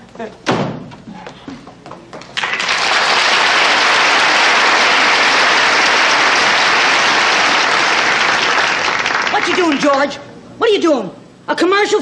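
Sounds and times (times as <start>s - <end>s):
audience applauding: 2.3s - 10.1s.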